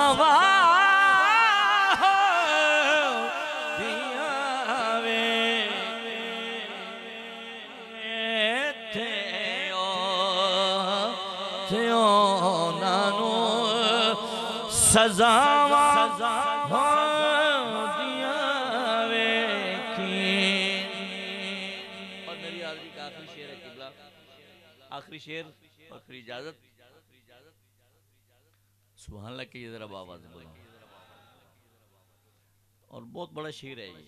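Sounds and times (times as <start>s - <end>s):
man singing unaccompanied: 0.0s - 24.2s.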